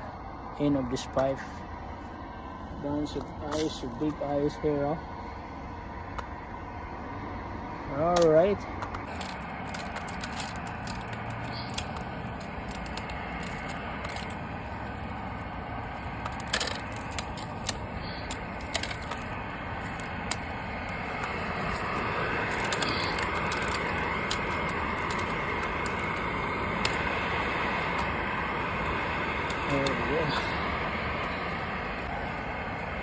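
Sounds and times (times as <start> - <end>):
steady rushing noise: 0.0 - 33.0
sharp ice cracks: 9.0 - 28.2
snow and ice crunching: 9.0 - 33.0.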